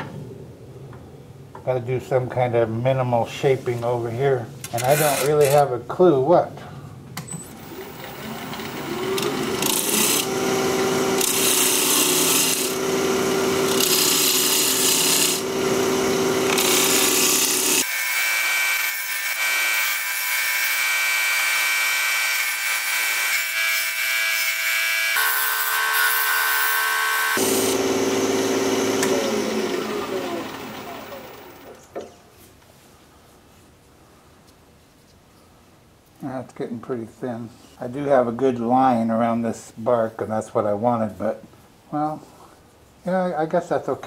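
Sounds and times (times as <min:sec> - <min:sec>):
turning tool scraping: 0:04.7 - 0:05.6, 0:08.6 - 0:17.9
lathe motor hum: 0:07.6 - 0:17.8, 0:25.2 - 0:31.8.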